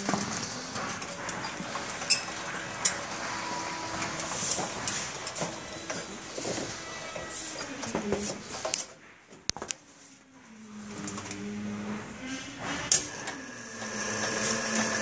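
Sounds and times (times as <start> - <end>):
saw machinery motor hum: 13.1 - 15.0.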